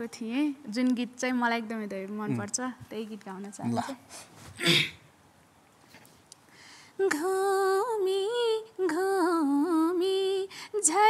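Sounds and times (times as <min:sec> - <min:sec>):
woman singing unaccompanied: 0:07.0 - 0:11.0.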